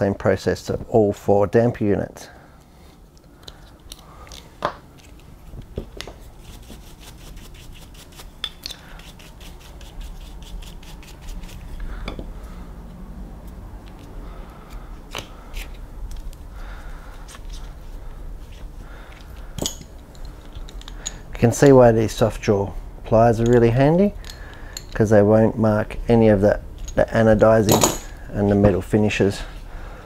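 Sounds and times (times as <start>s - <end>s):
small parts clicking and tapping: 19.1s - 21.2s, 24.2s - 25.0s.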